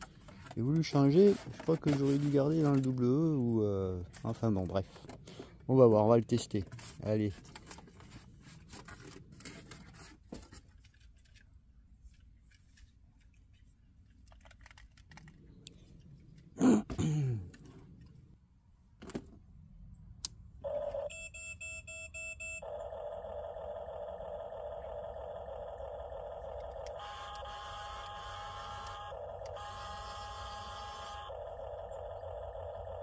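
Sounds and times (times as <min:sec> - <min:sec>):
packaging rustling and clicking: 0:00.0 - 0:03.4, 0:06.6 - 0:16.5.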